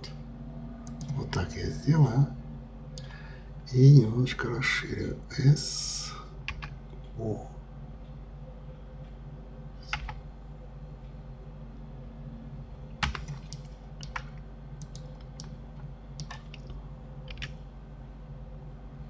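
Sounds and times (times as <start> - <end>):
low hum: 0.0 - 19.0
keyboard key clicks: 13.0 - 15.5, 16.2 - 17.5.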